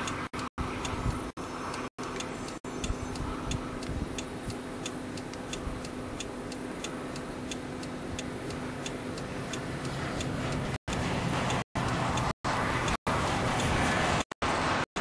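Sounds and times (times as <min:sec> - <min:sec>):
wind rumble on microphone: 0:00.0 - 0:01.8, 0:02.7 - 0:04.6, 0:09.1 - 0:14.8
faint steady hum: 0:00.0 - 0:11.0
light even ticking: 0:00.0 - 0:13.0.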